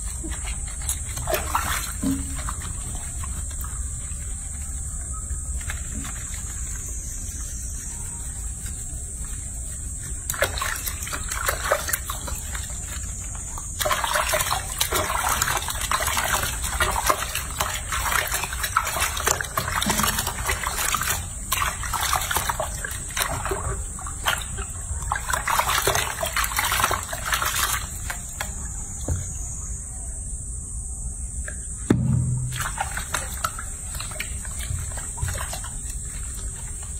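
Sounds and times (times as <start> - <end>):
small wet slaps: 0.0 - 4.6, 10.0 - 28.6, 31.4 - 36.9
water splashing in a sink: 0.0 - 8.1, 8.8 - 29.2, 31.9 - 36.9.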